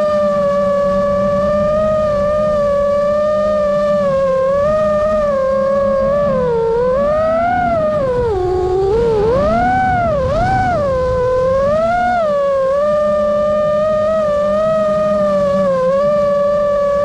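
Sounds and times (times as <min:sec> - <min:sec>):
drone motors whining: 0:00.0 - 0:17.0
low rushing noise: 0:00.0 - 0:17.0.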